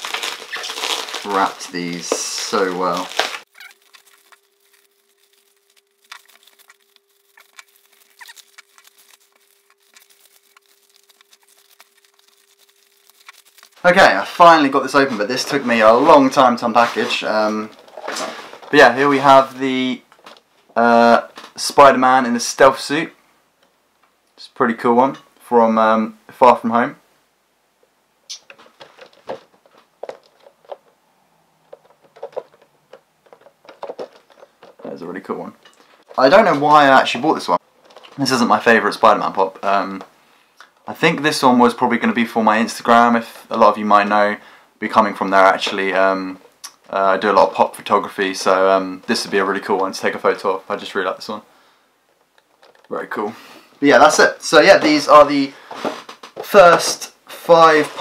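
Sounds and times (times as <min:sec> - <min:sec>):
cardboard box handling noise: 0:00.0 - 0:13.9
plastic crinkles: 0:00.0 - 0:19.5, 0:28.3 - 0:31.0, 0:31.6 - 0:40.1
bubble wrap crackling: 0:00.0 - 0:19.6, 0:31.8 - 0:39.6
faint steady hum: 0:00.0 - 0:58.0.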